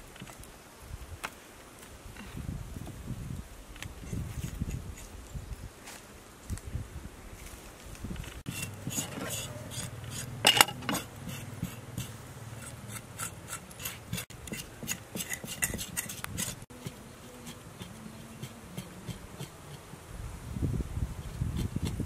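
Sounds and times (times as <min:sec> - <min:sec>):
cleaver scraping skin: 0:08.4 - 0:10.3, 0:10.9 - 0:19.9.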